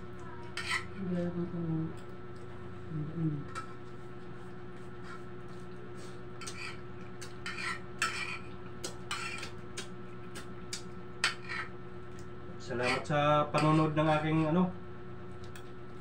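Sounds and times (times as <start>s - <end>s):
electric fan humming: 0.0s - 16.0s
dishes clattering and scraping: 0.4s - 1.0s, 6.4s - 9.6s, 11.2s - 11.8s, 12.8s - 14.5s.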